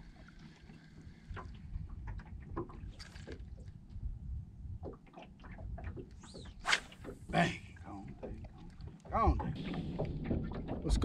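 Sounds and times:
water lapping against boat hull: 0:00.0 - 0:11.0
wind noise on microphone: 0:03.8 - 0:05.0.

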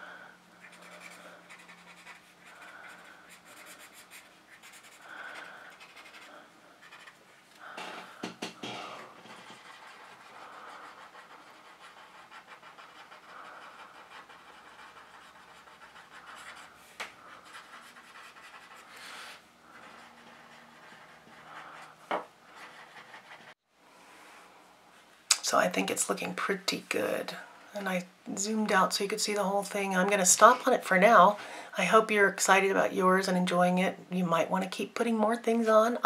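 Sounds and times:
pencil scratching on paper: 0:00.6 - 0:07.2, 0:08.7 - 0:23.6.

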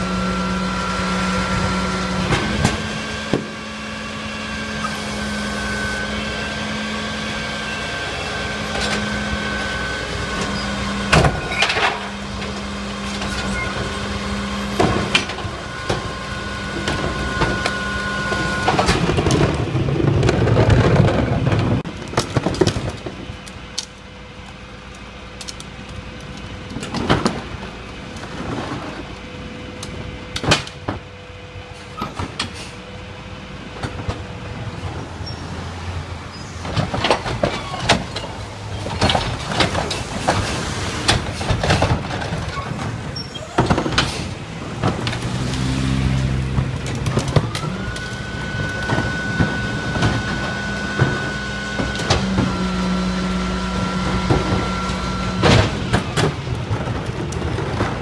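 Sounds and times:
refuse being compacted: 0:00.0 - 0:58.0
truck engine drone with whine: 0:00.0 - 0:58.0
clanks of carts and metal: 0:08.2 - 0:24.0, 0:31.7 - 0:32.8, 0:33.7 - 0:58.0.

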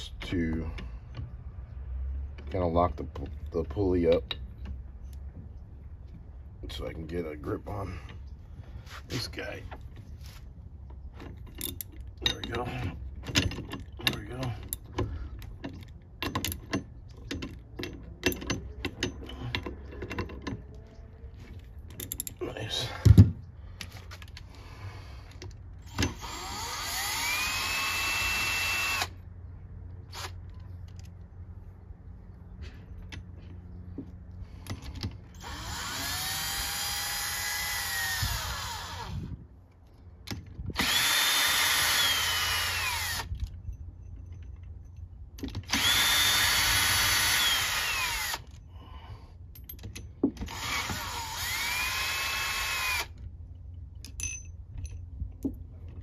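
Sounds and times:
power drill motor whine: 0:25.9 - 0:29.2, 0:35.4 - 0:39.3, 0:40.8 - 0:43.3, 0:45.7 - 0:48.5, 0:50.5 - 0:53.2.

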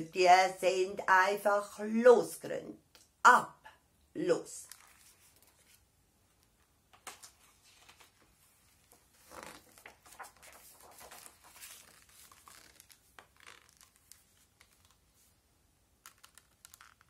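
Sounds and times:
paper pages rustling: 0:04.6 - 0:15.4, 0:16.0 - 0:17.0.

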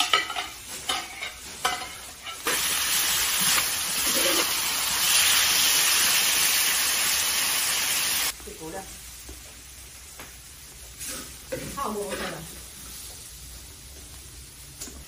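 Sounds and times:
metal spatula scraping wok: 0:00.0 - 0:02.8, 0:11.0 - 0:12.5
food sizzling in wok: 0:00.0 - 0:15.0.

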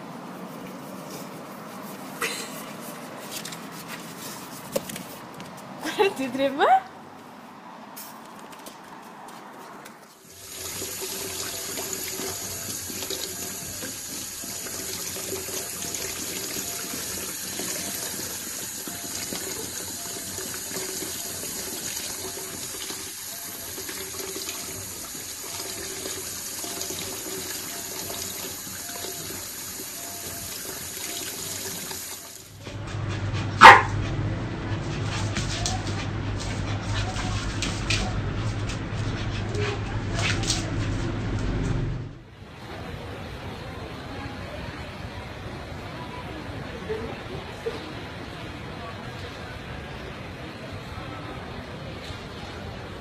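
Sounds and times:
tap water running into bathtub: 0:10.3 - 0:32.5.

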